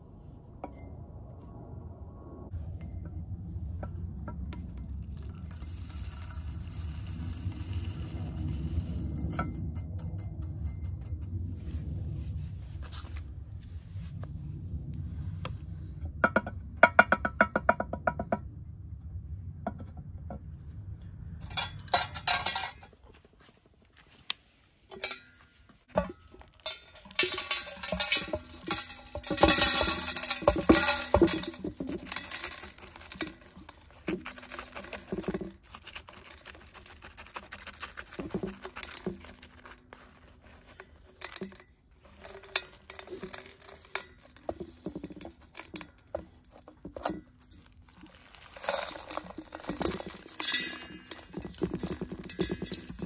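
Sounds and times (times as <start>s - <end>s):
soil scraping and rustling: 2.5s - 9.8s, 10.4s - 15.8s, 21.4s - 53.0s
pebbles rattling into ceramic pot: 4.6s - 11.0s, 25.9s - 53.0s.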